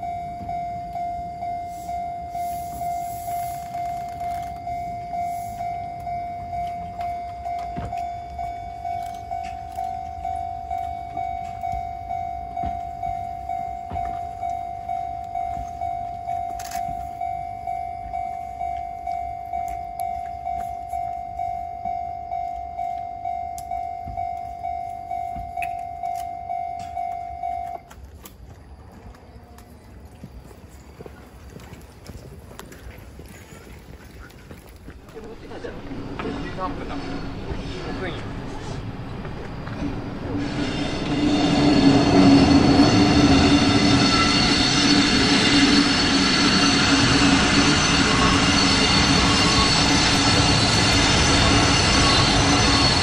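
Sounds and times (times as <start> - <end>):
train cars rumbling over rails: 0.0 - 21.2, 27.7 - 53.0
level crossing bell dinging: 0.0 - 27.9.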